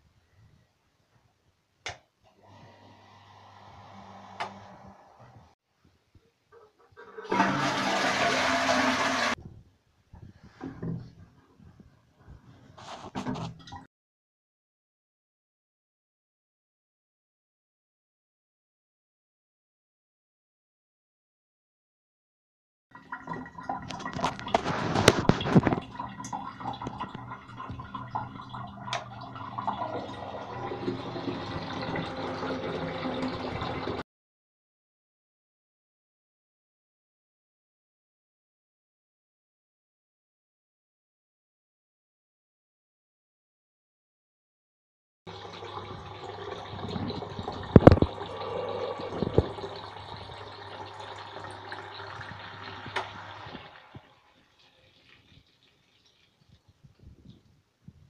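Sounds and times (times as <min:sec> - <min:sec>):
water gurgling through valve: 0:07.0 - 0:09.4, 0:23.0 - 0:34.0, 0:45.3 - 0:57.4
water pump running: 0:07.2 - 0:09.4, 0:28.9 - 0:34.0, 0:45.3 - 0:54.1.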